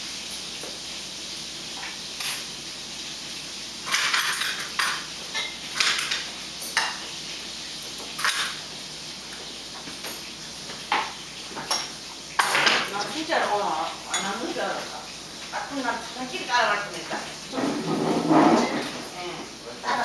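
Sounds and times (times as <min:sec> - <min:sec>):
utensils clinking on ceramic bowls: 0:03.8 - 0:07.0, 0:07.9 - 0:08.6, 0:10.9 - 0:13.3, 0:14.1 - 0:14.6.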